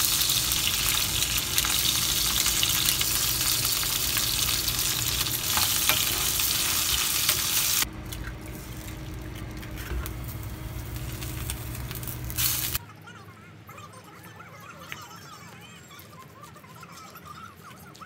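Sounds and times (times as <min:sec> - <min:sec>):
food sizzling in frying pan: 0:00.0 - 0:07.9, 0:08.5 - 0:12.8.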